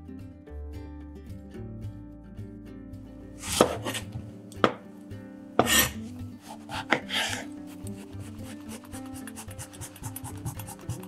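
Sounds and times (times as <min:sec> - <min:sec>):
soft background music: 0:00.0 - 0:11.0
knife cutting on cutting board: 0:03.4 - 0:04.8, 0:05.6 - 0:11.0.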